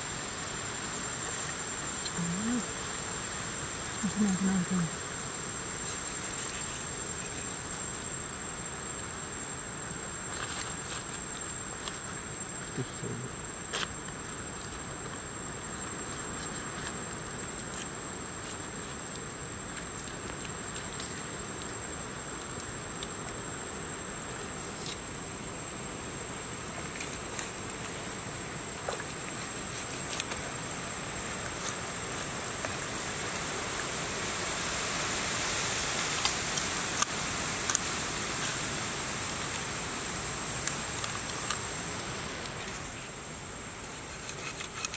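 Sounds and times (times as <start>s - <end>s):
insects droning: 0.0s - 44.9s.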